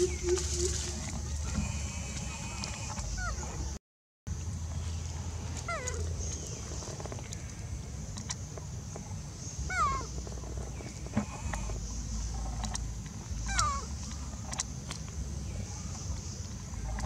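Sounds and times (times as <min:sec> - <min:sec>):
animal calls falling in pitch: 0:00.0 - 0:01.7.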